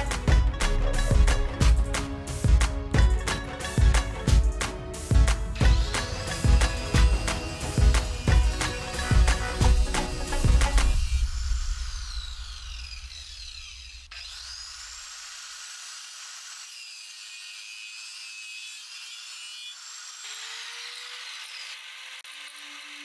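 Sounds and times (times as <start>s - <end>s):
circular saw motor whine: 5.6s - 15.7s, 20.0s - 23.0s.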